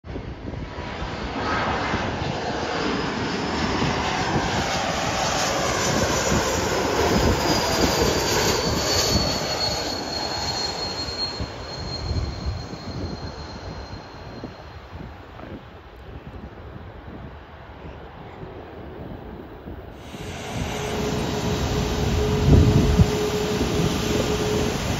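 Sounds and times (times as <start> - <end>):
jet engines passing overhead: 0.1 - 24.9
high whine sliding down: 5.8 - 15.1, 20.0 - 24.9.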